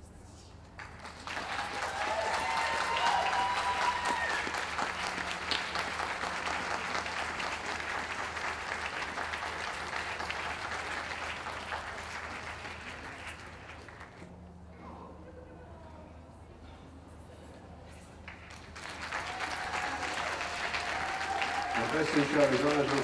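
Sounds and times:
audience applauding: 0.8 - 14.3, 18.3 - 23.0
crowd cheering: 1.1 - 14.2, 18.4 - 23.0.

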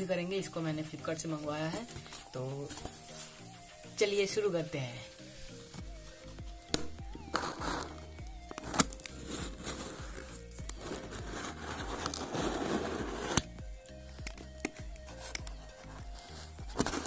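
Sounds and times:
soft background music: 0.0 - 17.0
blade slitting packing tape: 7.3 - 13.5.

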